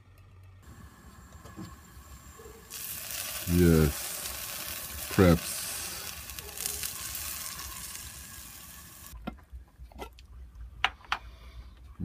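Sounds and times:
batter sizzling in a frying pan: 0.7s - 9.2s.

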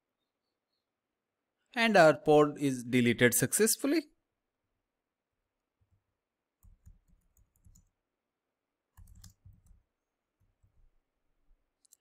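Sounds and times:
computer keyboard typing: 6.6s - 8.0s, 9.0s - 9.8s.

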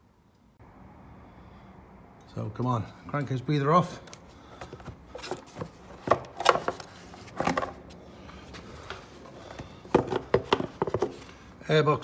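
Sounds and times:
plastic airbox knocks and clicks: 9.5s - 11.3s.

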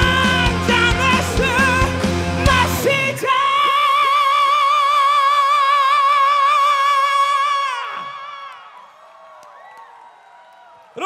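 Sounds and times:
live rock band: 0.0s - 3.3s
high singing voice: 0.0s - 8.2s.

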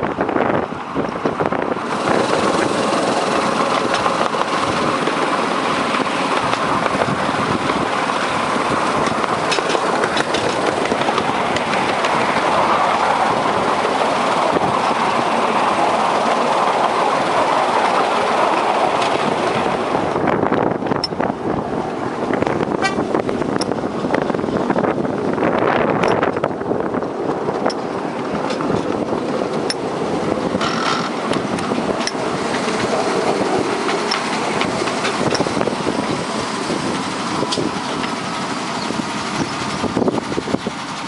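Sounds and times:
miniature train wheels clattering on rail: 1.2s - 17.0s, 30.5s - 41.0s.

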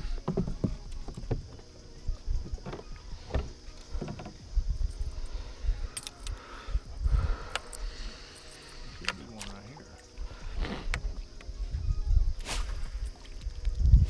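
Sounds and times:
steady low hum: 0.0s - 14.0s
thuds in plastic boat: 0.2s - 1.6s.

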